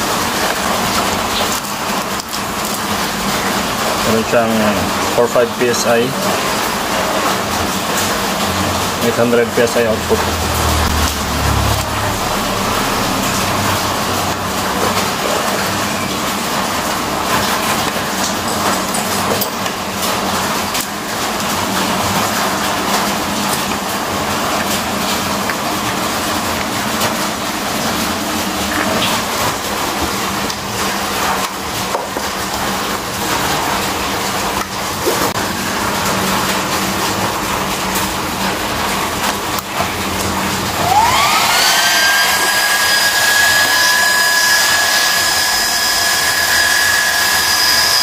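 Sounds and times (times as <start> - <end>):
air compressor droning: 3.3 - 17.4, 40.1 - 48.0.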